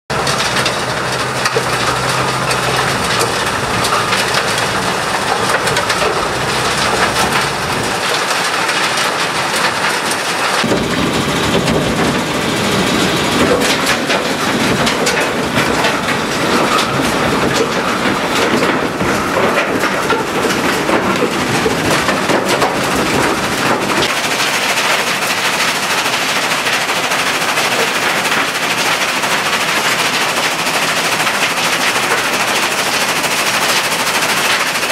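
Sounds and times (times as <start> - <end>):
low engine hum: 0.1 - 8.1
soil rattling on shaking screen: 0.1 - 34.9.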